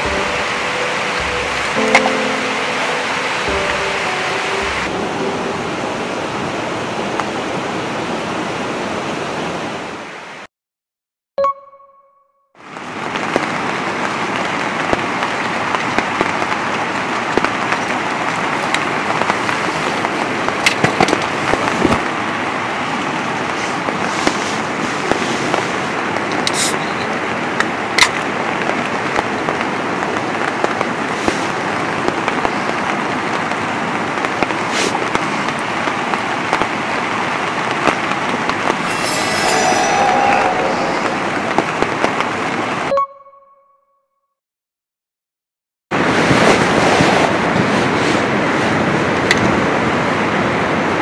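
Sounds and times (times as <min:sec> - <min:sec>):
rain pattering on tent: 0:12.6 - 0:38.8, 0:41.3 - 0:42.9.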